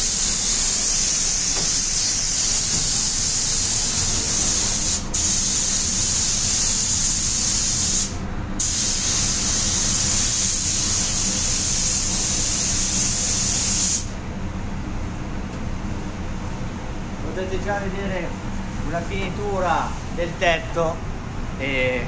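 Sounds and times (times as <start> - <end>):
paint spray gun hissing: 0.0 - 14.2
ventilation hum: 0.0 - 22.0.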